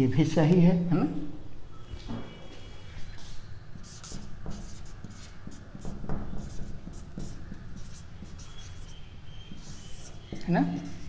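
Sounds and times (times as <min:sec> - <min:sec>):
marker writing on whiteboard: 0:01.9 - 0:11.0
marker tip tapping board: 0:03.8 - 0:10.5.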